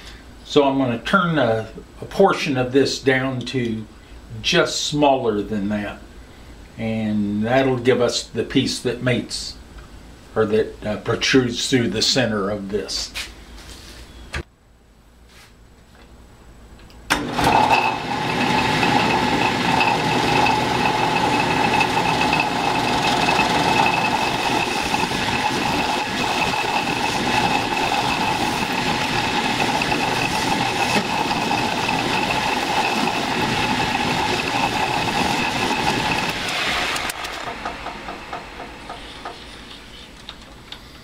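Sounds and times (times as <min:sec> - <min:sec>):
metal lathe whining: 0:17.2 - 0:40.1.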